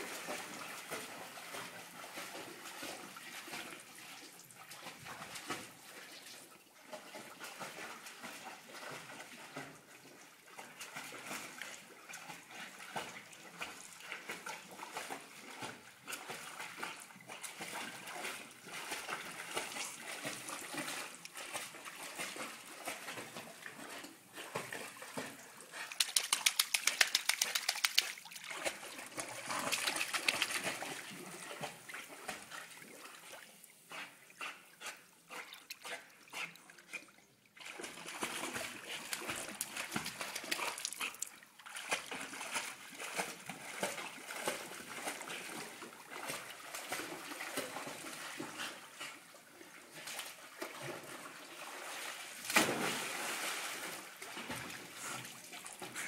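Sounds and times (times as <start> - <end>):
dog paddling in pool water: 0.0 - 56.0
quick regular splashes: 17.6 - 33.5, 37.6 - 46.4, 51.9 - 54.2.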